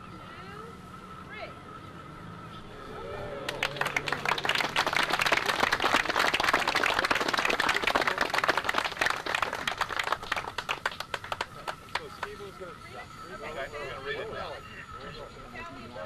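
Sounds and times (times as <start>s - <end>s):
crowd applauding: 3.2s - 12.6s.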